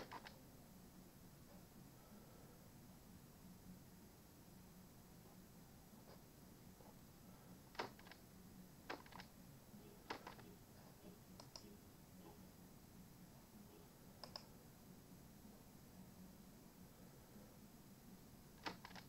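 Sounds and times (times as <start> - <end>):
computer mouse clicking: 0.0 - 0.4, 7.7 - 8.2, 8.9 - 9.3, 10.1 - 10.4, 11.4 - 11.7, 14.2 - 14.5, 18.6 - 19.0
faint low hum: 0.0 - 19.0.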